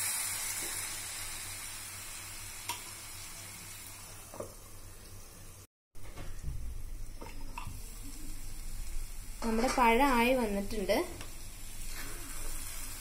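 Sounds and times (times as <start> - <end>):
bananas sizzling in a frying pan: 0.0 - 5.6, 6.9 - 13.0.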